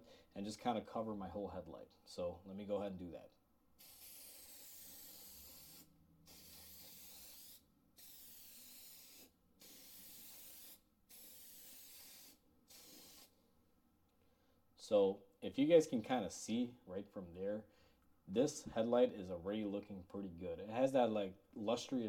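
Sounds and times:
aerosol spray hissing: 3.8s - 13.3s.

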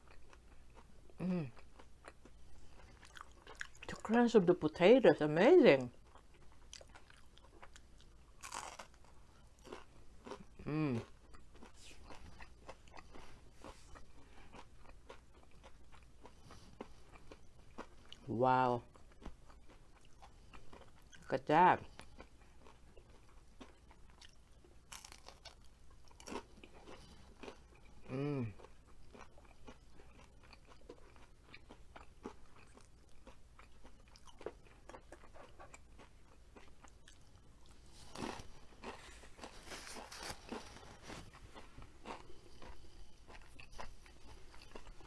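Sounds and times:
person humming mm: 1.2s - 1.6s, 10.6s - 11.0s, 28.1s - 28.6s
crunching crispy food: 6.1s - 13.7s, 22.2s - 45.0s.

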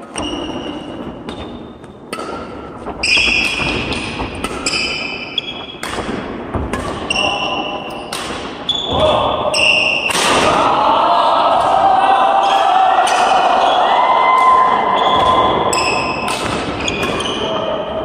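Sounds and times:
shoes squeaking on court floor: 0.0s - 10.2s, 14.9s - 17.8s
rackets hitting shuttlecock: 0.1s - 10.6s, 13.0s - 13.5s, 14.4s - 17.7s
voices: 8.7s - 18.0s.

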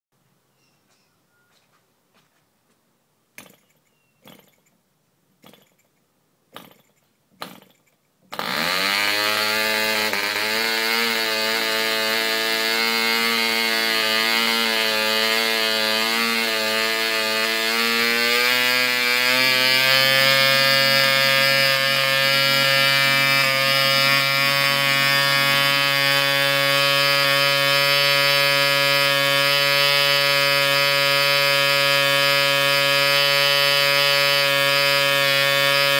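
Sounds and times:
small engine pops: 3.4s - 4.7s, 5.4s - 8.7s
small engine buzzing: 3.4s - 4.8s, 5.4s - 35.9s.

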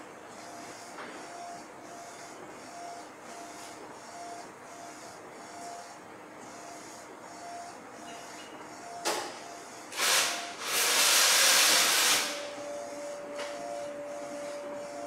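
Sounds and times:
hiss: 10.0s - 12.4s
printer carriage sweeping: 10.0s - 15.0s.

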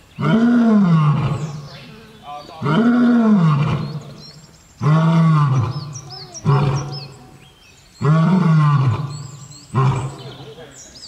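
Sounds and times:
lion roaring: 0.2s - 1.7s, 2.6s - 4.2s, 4.8s - 7.3s, 8.0s - 10.6s.

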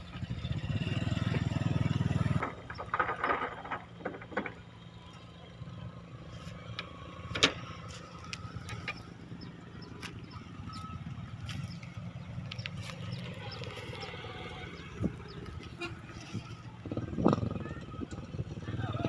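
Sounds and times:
diesel engines rumbling: 0.0s - 19.0s
scattered clattering: 2.1s - 5.2s.

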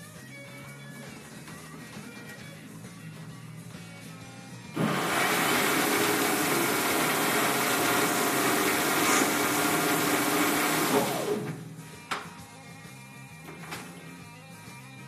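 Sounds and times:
lathe motor whirring: 4.8s - 11.8s.

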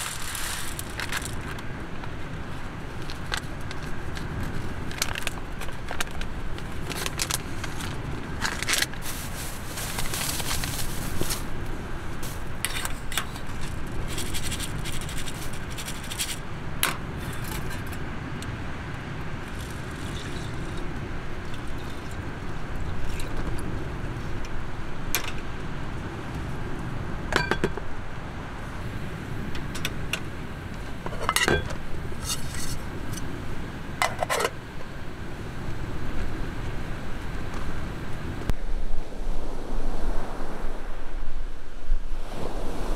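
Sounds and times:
rice poured into a tin: 0.0s - 1.3s
wind rumble on microphone: 0.0s - 42.9s
metal clinks and scrapes: 31.1s - 33.2s, 34.0s - 34.6s.

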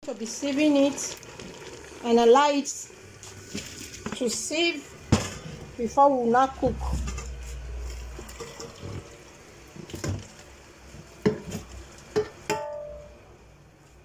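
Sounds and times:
water pouring through colander: 0.0s - 4.1s, 7.2s - 10.6s
pot knocking against metal sink: 11.2s - 13.0s.

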